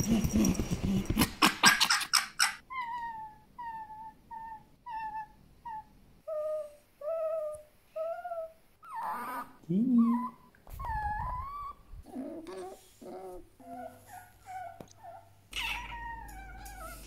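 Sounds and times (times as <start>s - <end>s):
fox whimpering and whining: 0.2s - 17.0s
fox chattering: 0.4s - 2.6s, 15.1s - 17.0s.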